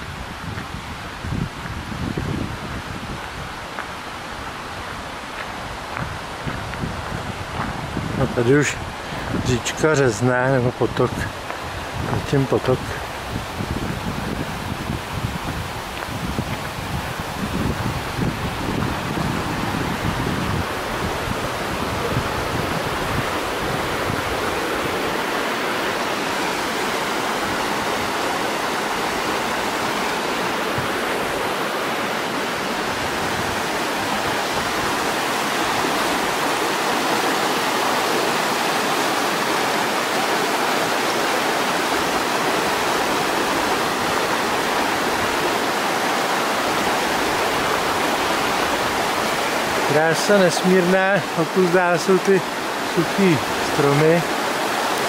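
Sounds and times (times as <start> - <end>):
brook flowing: 0.0 - 55.0.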